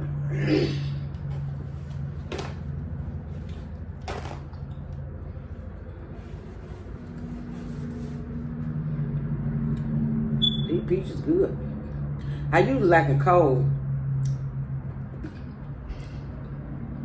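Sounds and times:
paper napkin rustling: 6.0 - 8.7.

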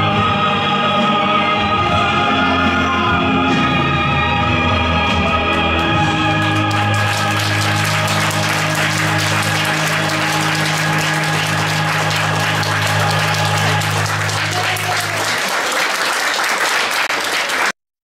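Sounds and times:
audience applauding: 5.2 - 17.8.

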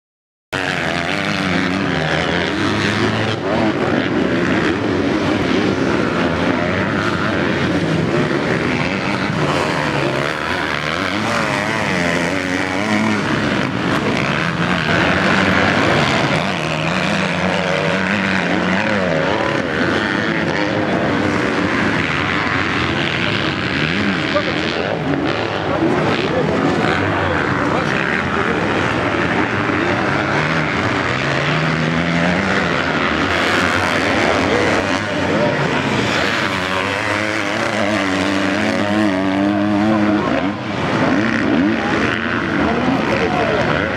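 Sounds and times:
motocross engines revving: 0.6 - 43.9.

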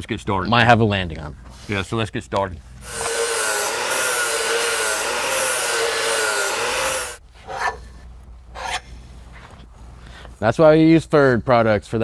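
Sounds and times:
angle grinder grinding steel: 2.8 - 7.2.

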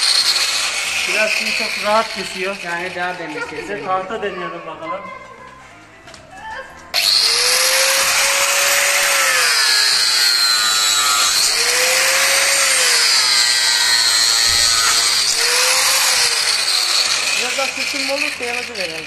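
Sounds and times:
angle grinder cutting wood: 0.0 - 4.1, 6.9 - 19.0.

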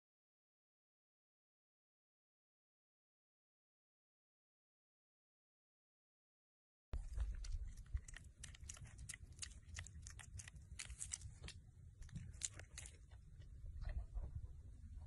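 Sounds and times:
piglet smacking and chewing: 7.0 - 14.4
low rumble: 7.0 - 15.0.

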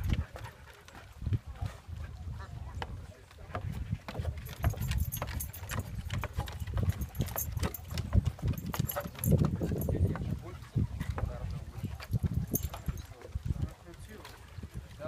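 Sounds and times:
footsteps on wooden stairs: 2.7 - 13.5.

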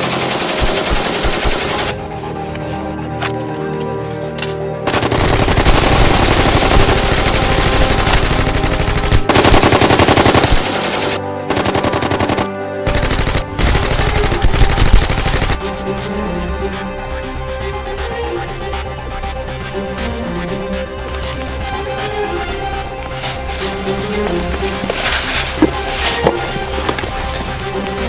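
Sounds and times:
rapid automatic gunfire: 0.0 - 1.9, 4.9 - 15.6
soundtrack music: 0.0 - 28.0.

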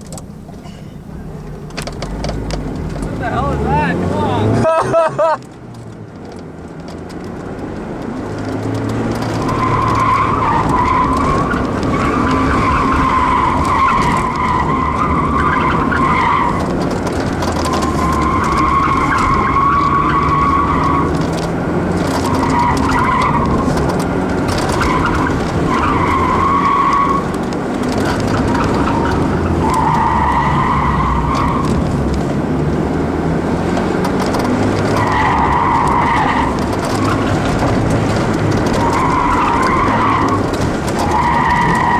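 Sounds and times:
car engine revving: 0.0 - 41.9
tire squeal: 8.3 - 32.2, 34.0 - 41.9.

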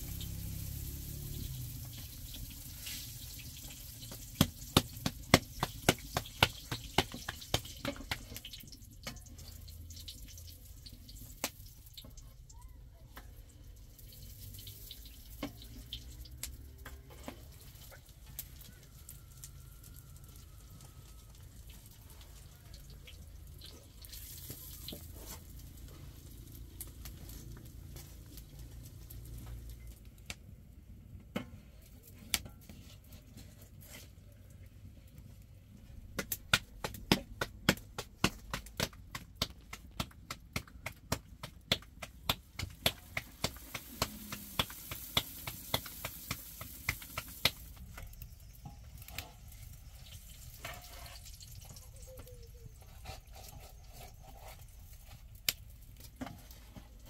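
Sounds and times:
food sizzling in hot oil: 0.0 - 12.3, 13.8 - 29.7, 41.4 - 57.0
sharp crackling pops: 36.1 - 49.3.

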